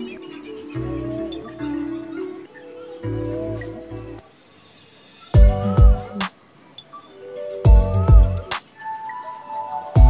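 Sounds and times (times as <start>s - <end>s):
melodic notes over bass line: 5.4s - 6.2s, 7.7s - 8.5s.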